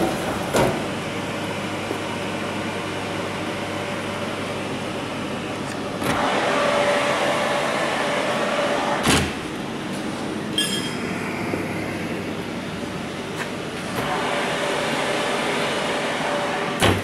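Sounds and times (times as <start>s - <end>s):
oven fan hum: 0.0s - 17.0s.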